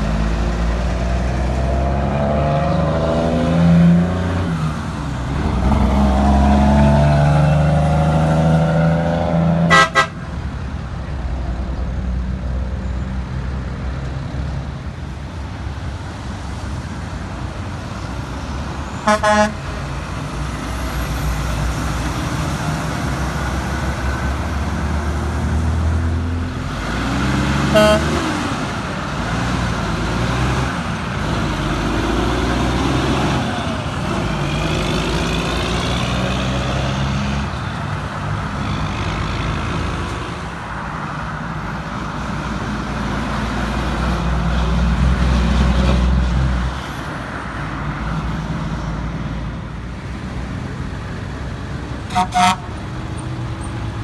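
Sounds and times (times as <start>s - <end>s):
truck and car engines: 0.0s - 54.0s
short horn toots: 9.7s - 10.2s, 19.0s - 19.6s, 27.7s - 28.2s, 52.1s - 52.7s.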